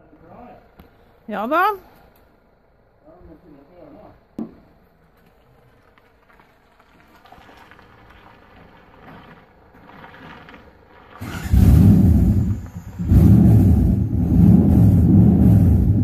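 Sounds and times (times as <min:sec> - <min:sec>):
car engine running: 0:08.0 - 0:16.0.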